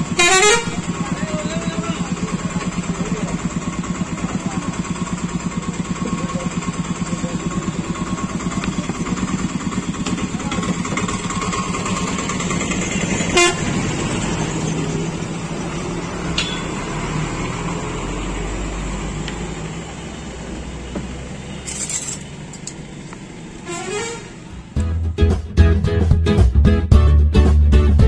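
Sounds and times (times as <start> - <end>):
car horn toots: 0.0 - 2.0, 13.0 - 13.9, 23.6 - 24.4
vehicle engines din: 0.0 - 25.1.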